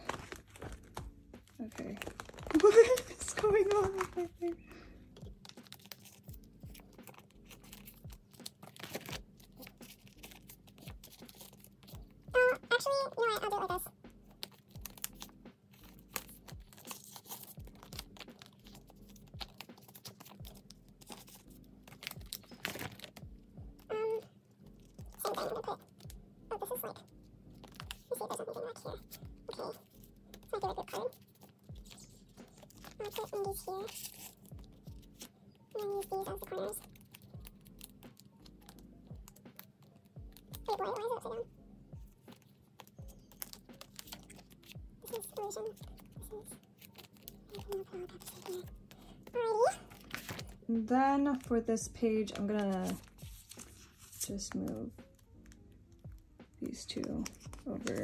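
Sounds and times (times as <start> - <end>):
plastic sleeves rustling: 0.0 - 58.0
soft background music with beat: 0.0 - 58.0.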